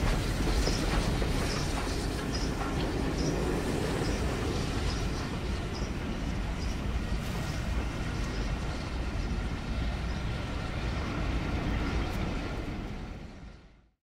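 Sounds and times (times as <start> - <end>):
faint rail clicks: 0.0 - 8.6
train wheels rumbling on rails: 0.0 - 13.9.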